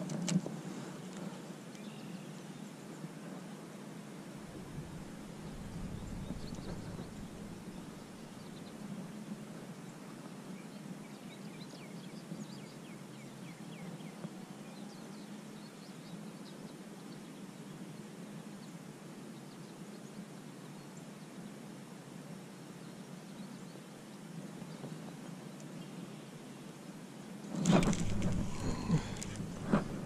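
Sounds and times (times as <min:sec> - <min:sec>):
low outdoor background hum: 0:00.0 - 0:30.0
birds chirping: 0:04.5 - 0:08.8, 0:27.5 - 0:30.0.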